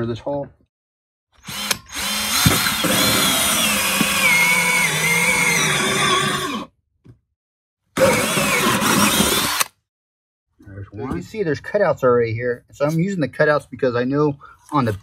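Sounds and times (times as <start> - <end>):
drill hole saw cutting plastic: 1.4 - 6.8, 8.0 - 9.8.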